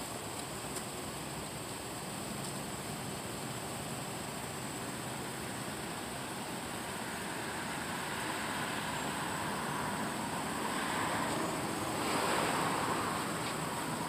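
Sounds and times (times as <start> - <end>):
background hiss: 0.0 - 14.0
car passing: 5.0 - 14.0.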